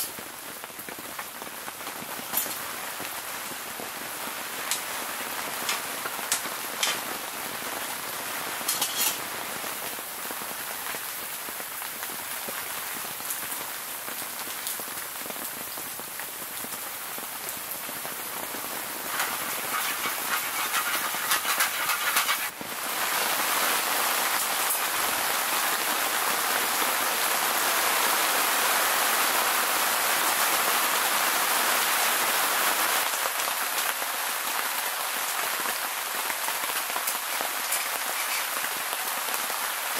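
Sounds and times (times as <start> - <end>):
heavy rain on tent: 0.0 - 39.9
metal tongs clicking on pan: 8.7 - 9.2.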